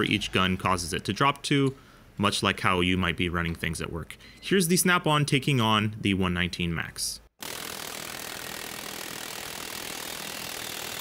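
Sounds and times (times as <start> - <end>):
pneumatic air hammer on steel: 7.4 - 11.0.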